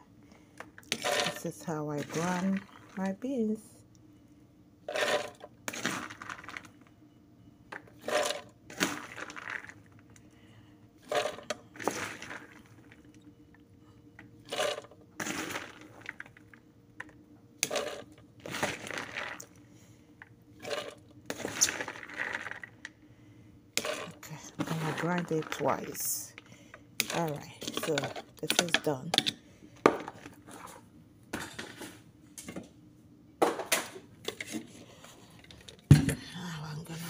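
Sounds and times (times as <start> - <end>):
food processor chopping beans: 0.9 - 1.4, 4.9 - 6.5, 8.0 - 9.6, 11.0 - 12.4, 14.5 - 15.9, 17.6 - 19.4, 23.8 - 26.2.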